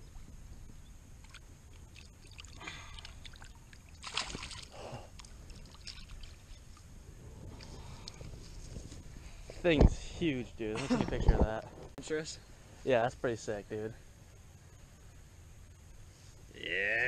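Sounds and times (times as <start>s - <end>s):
shallow water splashing: 1.2s - 6.8s.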